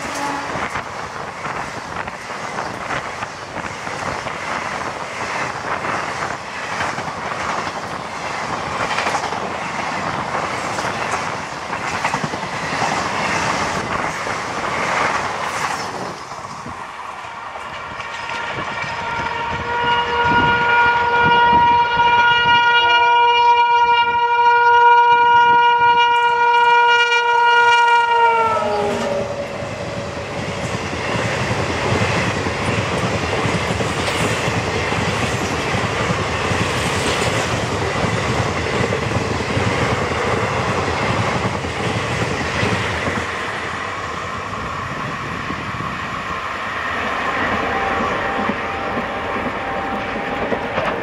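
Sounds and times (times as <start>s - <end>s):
train air horn blast: 0.0s - 0.7s, 18.2s - 29.7s, 47.6s - 50.4s
train wheels clattering over rail joints: 0.0s - 16.8s, 29.8s - 43.7s.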